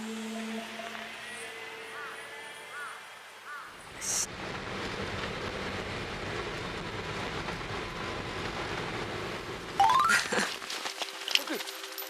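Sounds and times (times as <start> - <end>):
tyres on packed snow: 3.5 - 12.0.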